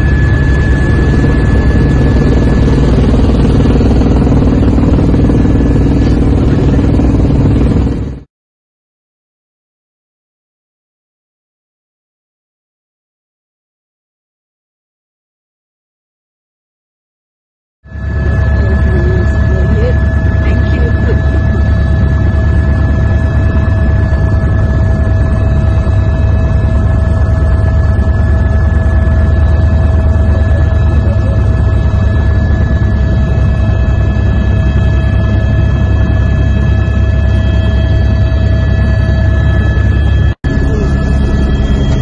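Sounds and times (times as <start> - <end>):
whining tones: 0.0 - 8.2, 17.9 - 42.0
helicopter rotor and engine drone: 0.0 - 8.3, 17.9 - 42.0.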